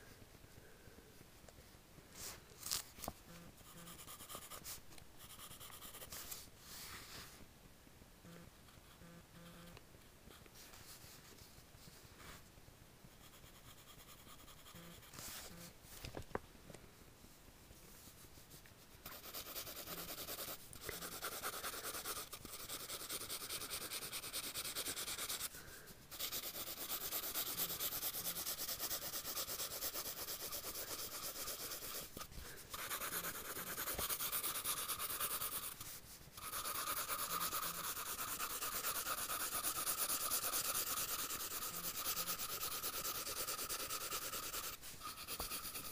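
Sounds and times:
pencil sketching strokes: 2.2 - 7.4, 13.1 - 15.7, 17.9 - 45.9
pencil rubbing over paper: 3.6 - 7.4, 13.1 - 15.7, 18.0 - 45.9.

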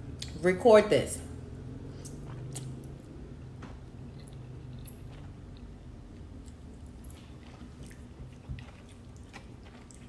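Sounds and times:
person chewing: 1.9 - 3.2, 3.8 - 10.0
wet mouth clicks: 2.0 - 3.0.

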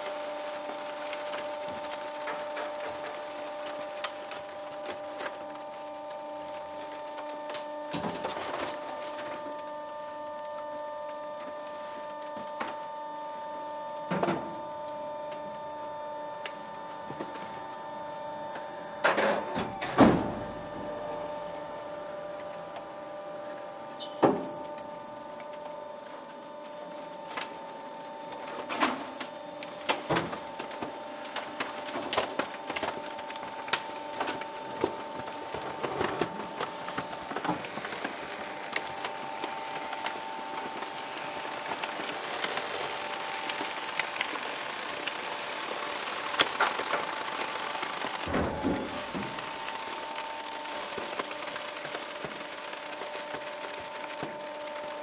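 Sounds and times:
compactor motor humming: 0.0 - 55.0
plastic cracking under press: 24.2 - 55.0.

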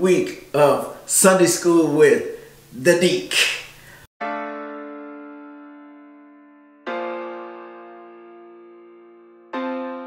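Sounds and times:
keyboard chords: 4.2 - 10.0.

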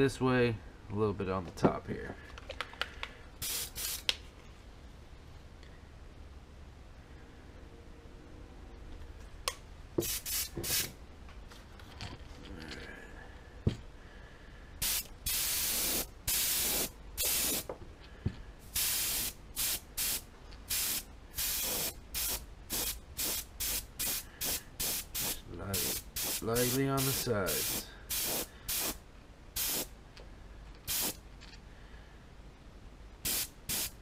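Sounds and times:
airbrush spraying hiss: 3.4 - 4.1, 10.0 - 10.9, 14.8 - 17.7, 18.6 - 29.0, 29.6 - 29.9, 30.9 - 31.2, 33.2 - 34.0.

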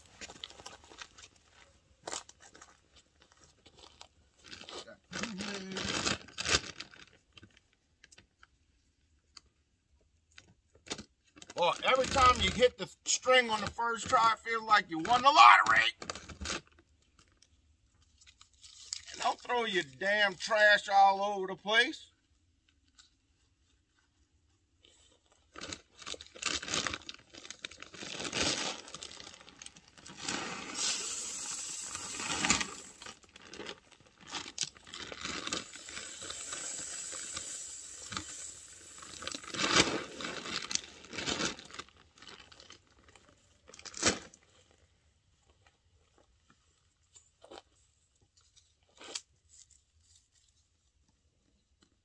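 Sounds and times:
feed sack crinkling: 0.0 - 7.6, 24.9 - 44.8
corn kernels pouring onto ground: 30.1 - 33.2, 35.2 - 40.3.

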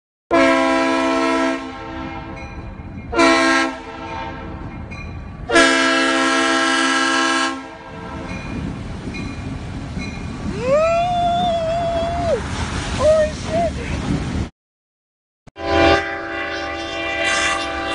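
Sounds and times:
locomotive air horn blasts: 0.3 - 2.4, 3.1 - 4.6, 5.5 - 8.3, 15.6 - 17.9
train rumbling: 0.3 - 14.5, 15.6 - 17.9.

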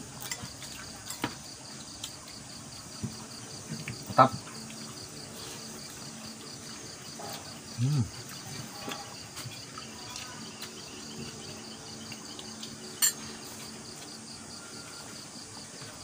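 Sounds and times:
night insects chirping: 0.0 - 16.0
plates and spoons clinking: 12.9 - 13.4.

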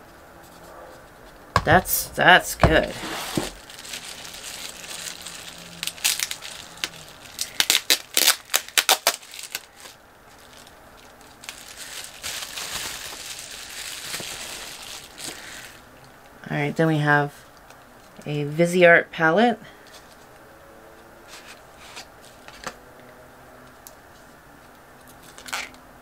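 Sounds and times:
packaging crinkling: 2.6 - 15.9.

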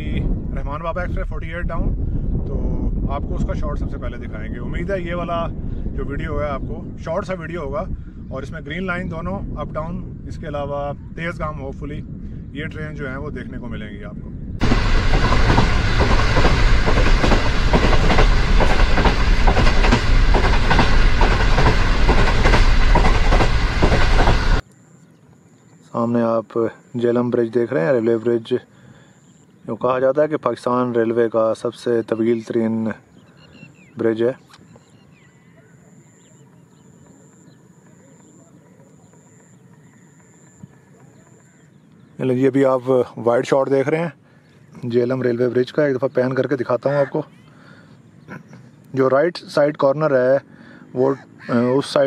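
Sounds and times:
train rumbling: 14.6 - 24.6
wheels clattering over rails: 14.6 - 24.6
faint bird chirps: 24.6 - 30.8, 31.8 - 43.1, 44.2 - 49.2.

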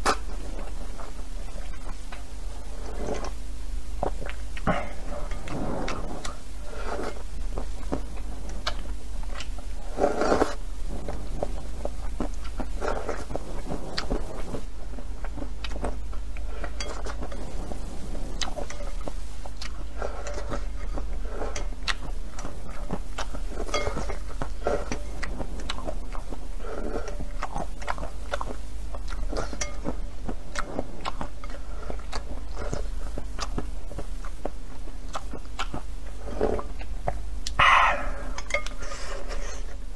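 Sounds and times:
slurping and chewing noodles: 0.0 - 3.4, 4.0 - 39.9
low hum: 35.9 - 39.9.

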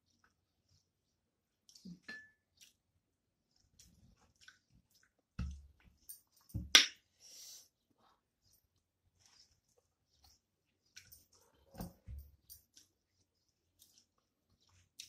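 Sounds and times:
chewing: 1.5 - 6.4, 8.0 - 15.0.

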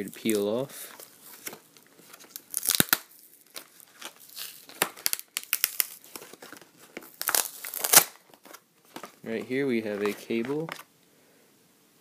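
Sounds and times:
plastic packaging crinkling: 0.0 - 10.9.

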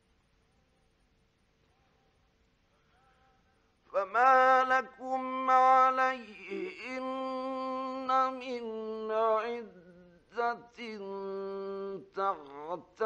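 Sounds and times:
man chanting melodically: 4.0 - 13.0.

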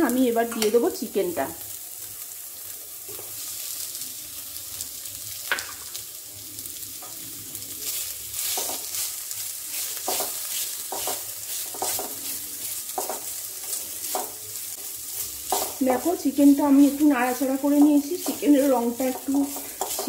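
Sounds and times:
chicken sizzling in oil: 0.0 - 20.0
spatula scraping: 7.9 - 16.1, 16.8 - 20.0.

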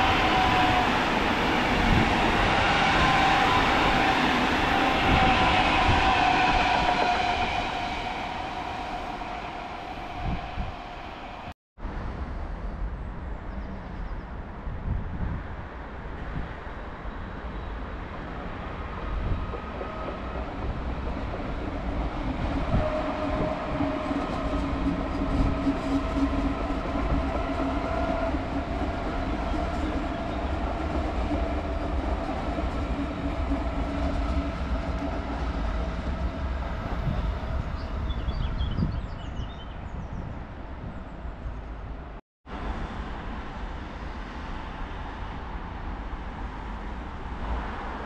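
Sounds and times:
train wheels rumbling on track: 0.0 - 11.6, 17.9 - 40.2.

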